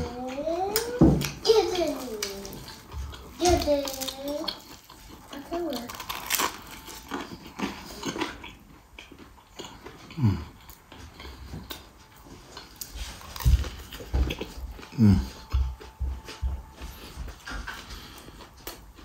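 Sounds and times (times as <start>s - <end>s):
man chewing with crunches: 0.0s - 19.0s
man humming mmm: 14.9s - 15.6s.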